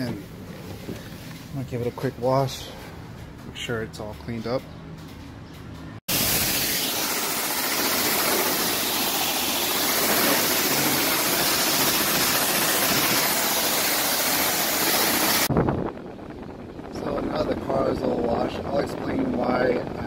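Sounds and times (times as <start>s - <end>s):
high-pressure water spray hissing: 6.1s - 15.5s.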